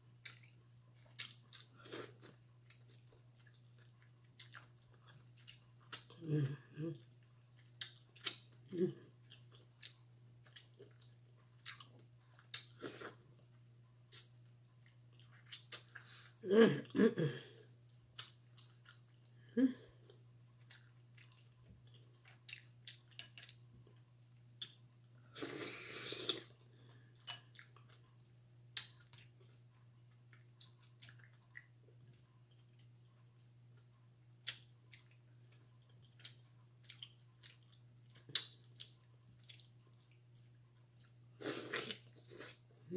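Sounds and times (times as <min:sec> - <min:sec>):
chewing and lip smacks: 0:00.2 - 0:06.2, 0:07.0 - 0:16.3, 0:17.8 - 0:19.3, 0:20.0 - 0:25.6, 0:27.2 - 0:42.7
slurp: 0:25.3 - 0:26.5.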